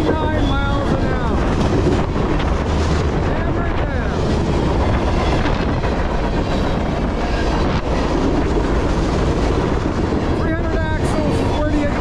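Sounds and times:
train wheels rolling on rail: 0.0 - 12.0.

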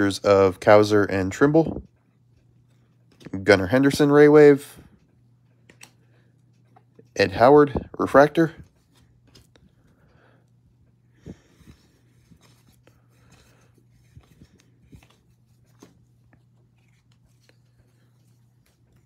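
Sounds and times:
faint steady hum: 0.0 - 19.0
trading cards clicking and rustling: 5.5 - 9.9, 11.5 - 19.0.

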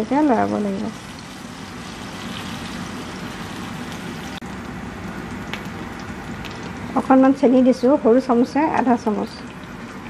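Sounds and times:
oil sizzling in a frying pan: 0.0 - 10.0
small crackles: 3.8 - 6.9.

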